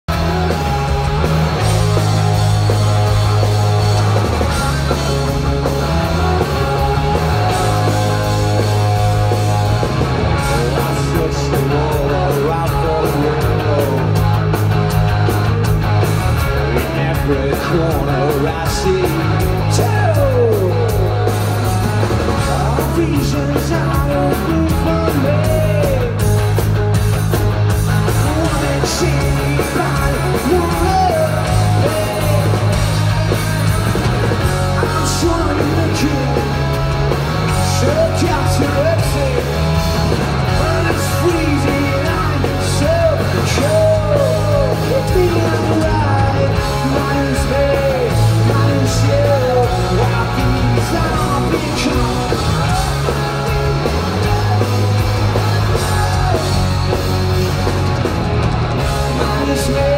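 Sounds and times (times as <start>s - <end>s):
electric bass line: 0.0s - 59.9s
drums with cymbal crashes: 0.1s - 59.9s
person singing and shouting: 16.7s - 26.2s, 28.2s - 33.1s, 34.6s - 36.7s, 37.5s - 57.4s, 59.0s - 59.9s.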